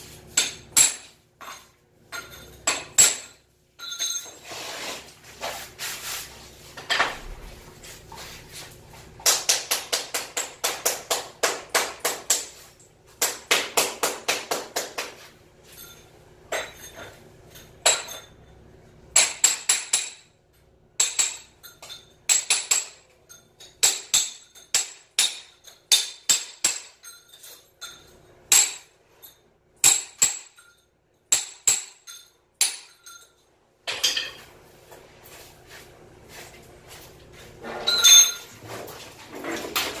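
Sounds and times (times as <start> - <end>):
hammer striking metal: 0.4 - 4.3, 19.2 - 20.3, 23.7 - 27.2, 27.8 - 28.9, 29.8 - 33.3.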